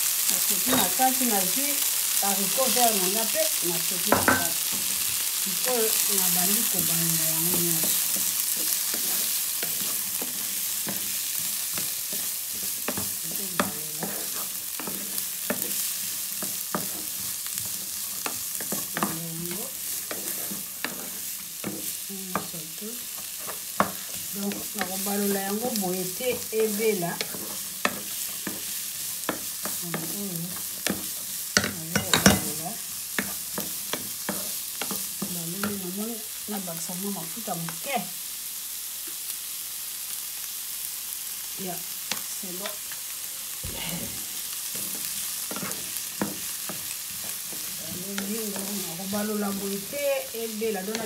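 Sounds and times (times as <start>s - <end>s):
vegetables sizzling in a pan: 0.0s - 51.0s
spatula scraping and tapping pan: 6.5s - 36.0s, 44.6s - 50.0s, 50.7s - 51.0s.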